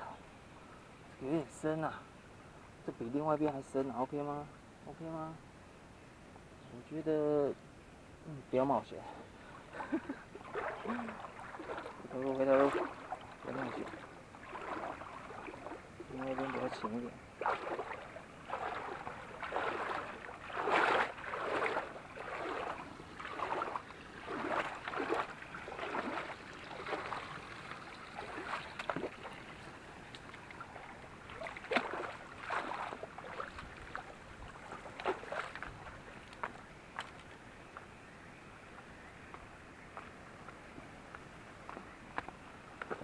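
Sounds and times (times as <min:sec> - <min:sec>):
wading through stream water: 0:08.5 - 0:37.6, 0:41.6 - 0:43.0.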